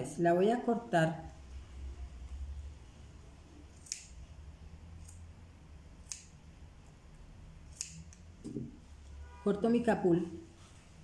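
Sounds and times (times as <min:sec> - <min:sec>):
scissors snipping yarn: 0:03.6 - 0:04.4, 0:05.0 - 0:05.3, 0:05.9 - 0:06.4, 0:07.6 - 0:08.6.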